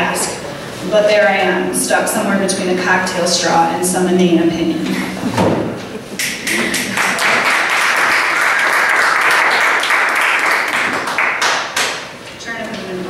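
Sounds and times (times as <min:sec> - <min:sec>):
audience applauding: 0:06.2 - 0:12.1.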